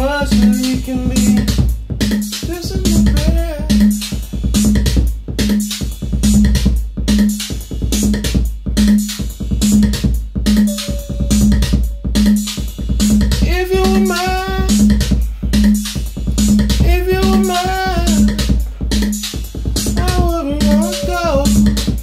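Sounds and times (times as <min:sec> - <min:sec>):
drum machine beat: 0:00.0 - 0:22.0
sliding synth melody: 0:10.6 - 0:12.7
low synth pulse: 0:10.7 - 0:12.6.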